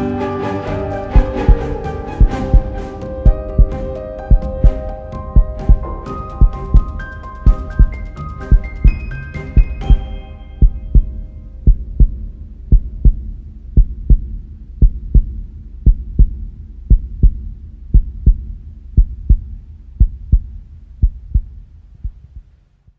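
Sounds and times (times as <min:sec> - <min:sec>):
heartbeat-like double thumps: 0:01.1 - 0:22.6
steady low hum: 0:10.6 - 0:22.9.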